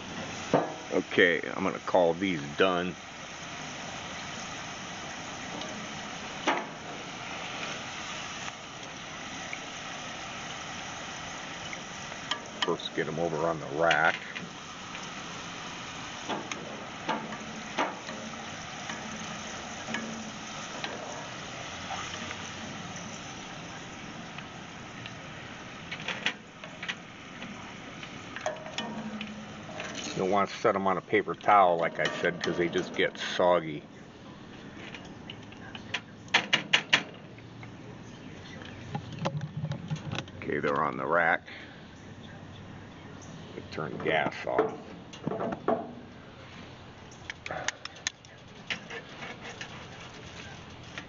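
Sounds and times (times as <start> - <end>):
wire skimmer lifting fries: 0.0 - 33.6, 48.2 - 51.0
fries sizzling in hot oil: 0.0 - 41.7, 46.1 - 51.0.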